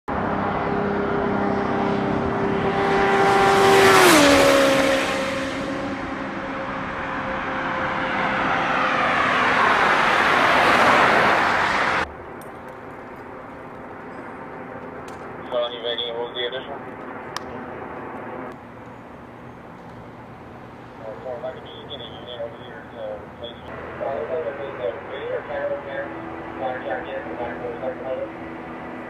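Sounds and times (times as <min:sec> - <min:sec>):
motorcycle passing at high speed: 0:00.1 - 0:15.5, 0:23.7 - 0:29.0
vehicles rushing past: 0:00.1 - 0:29.0.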